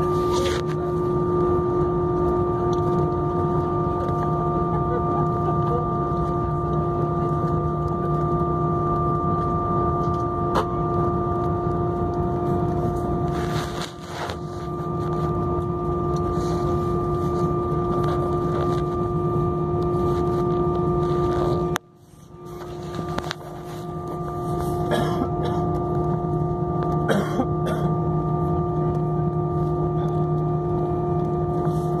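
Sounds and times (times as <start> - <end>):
aeroplane drone: 0.0 - 32.0.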